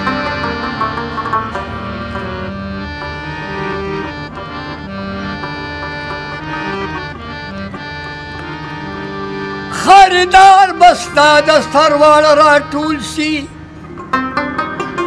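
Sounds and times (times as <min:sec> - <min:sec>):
tabla: 0:00.0 - 0:08.6
harmonium melody: 0:00.0 - 0:15.0
rabab: 0:00.0 - 0:15.0.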